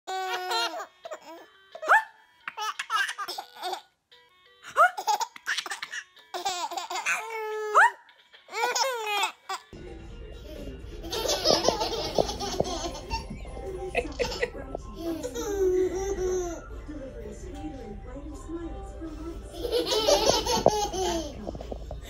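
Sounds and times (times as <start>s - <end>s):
babies laughing: 0.1s - 3.9s, 4.7s - 9.7s, 11.0s - 16.6s, 19.6s - 21.5s.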